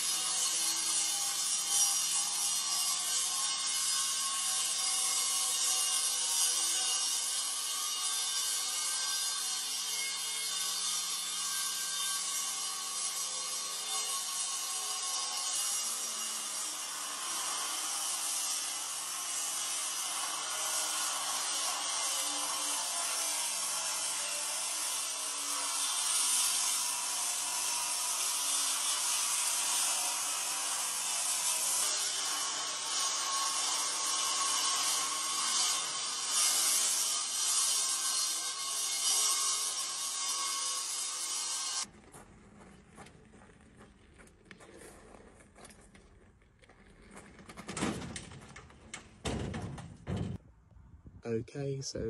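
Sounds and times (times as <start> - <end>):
angle grinder cutting masonry: 0.0 - 41.9
wheelbarrow on gravel: 41.9 - 48.8.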